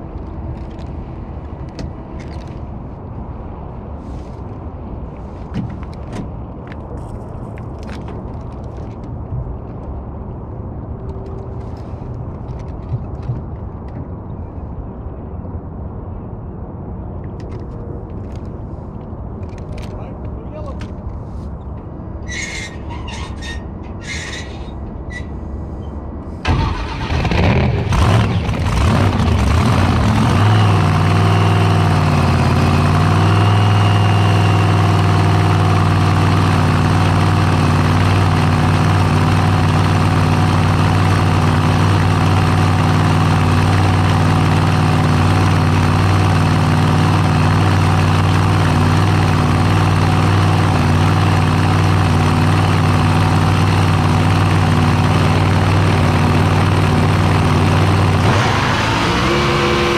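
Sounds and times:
boat engine starting and idling: 26.4s - 31.2s.

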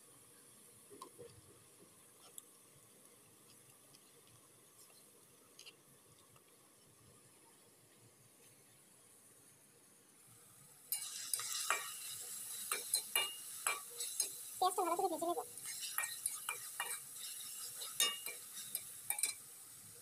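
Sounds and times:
onions sizzling in oil: 0.0s - 20.0s
spatula scraping wok: 10.9s - 19.5s.

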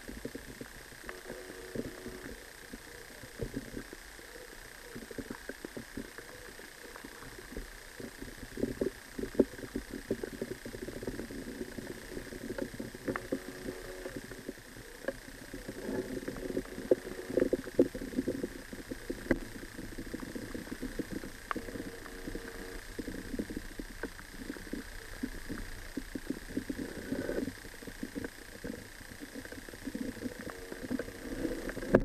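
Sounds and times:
underwater clicking and crackling: 0.0s - 32.0s
faint steady high tone: 1.0s - 5.3s, 10.9s - 23.6s, 29.4s - 32.0s.

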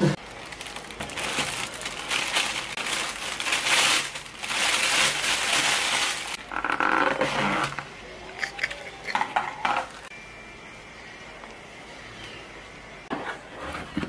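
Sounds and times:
plastic bag rustling: 0.0s - 6.4s, 9.6s - 10.1s.

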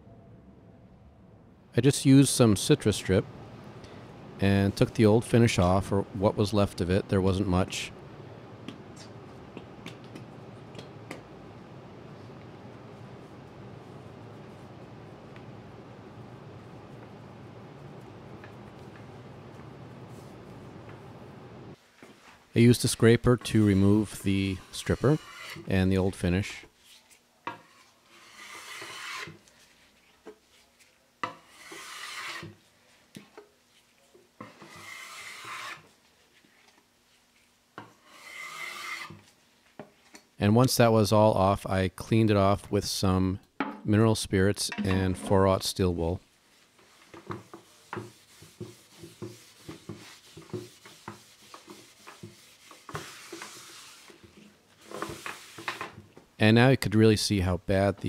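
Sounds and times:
cloth wiping wood: 19.5s - 20.6s, 46.5s - 54.2s
metal scraper scraping wood: 24.7s - 25.7s, 27.6s - 29.4s, 31.2s - 32.6s, 34.4s - 35.9s, 38.0s - 39.2s
steel wool scrubbing wood: 31.5s - 32.5s, 46.8s - 55.8s.

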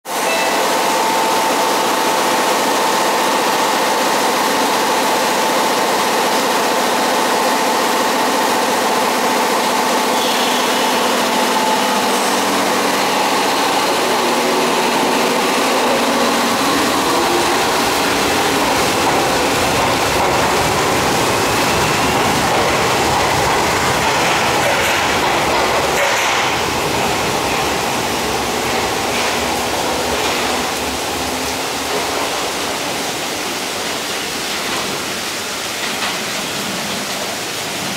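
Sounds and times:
train doors shutting: 0.1s - 37.9s
heavy rain hissing: 0.2s - 37.9s
electric train motors whining: 7.5s - 33.0s.

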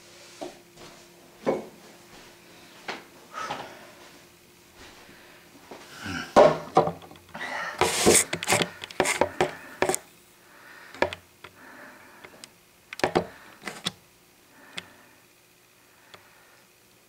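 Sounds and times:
clicks and taps: 7.8s - 10.0s, 10.9s - 11.6s, 12.2s - 14.0s.

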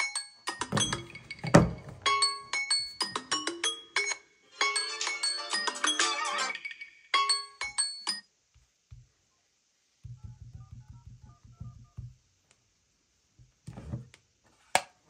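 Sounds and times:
phone ringtone: 2.1s - 8.2s.

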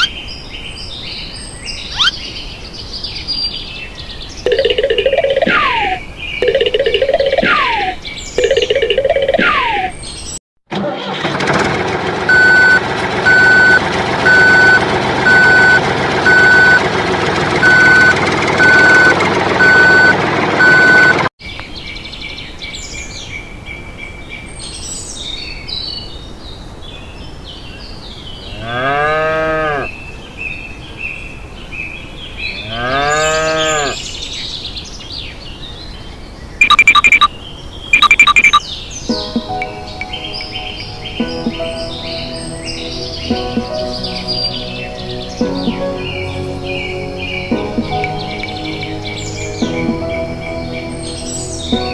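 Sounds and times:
birds chirping: 0.0s - 10.4s, 30.6s - 51.9s
large vehicle engine running: 11.1s - 21.2s
reversing beeper: 12.3s - 16.9s, 17.6s - 21.2s, 36.6s - 37.3s, 37.9s - 38.6s
cow mooing: 28.5s - 29.9s, 32.6s - 34.0s.

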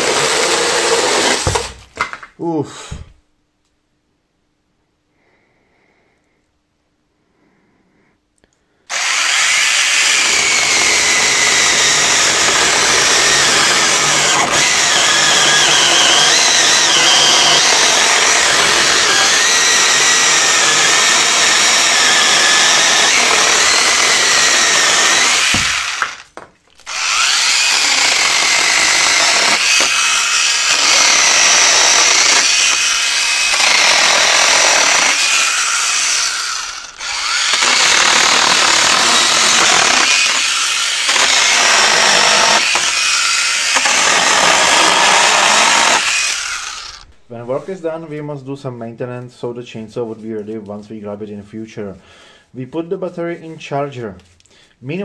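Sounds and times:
cordless chainsaw cutting wood: 0.0s - 1.8s, 8.9s - 47.1s.

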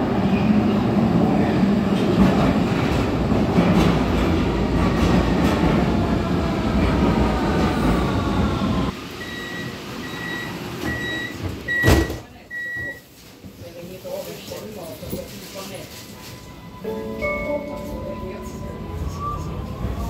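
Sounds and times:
subway train braking with whine: 0.0s - 13.0s, 16.0s - 20.0s
door signal beeps: 9.2s - 13.1s.

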